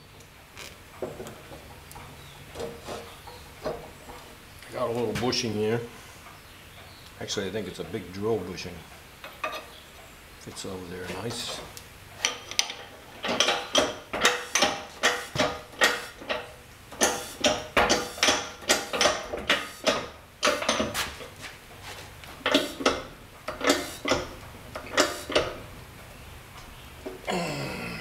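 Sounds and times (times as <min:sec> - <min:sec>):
metal parts clanking together: 0:12.2 - 0:21.0.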